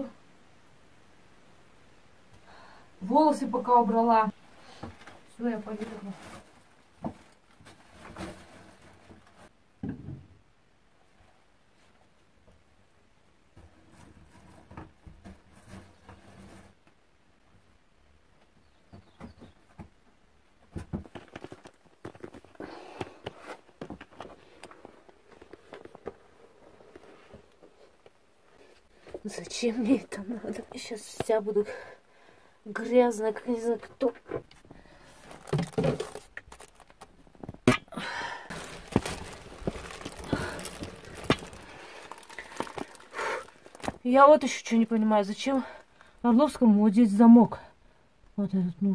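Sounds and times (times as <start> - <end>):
gear scraping and knocking on rock: 38.5 - 44.2
breathy puff: 43.0 - 43.6.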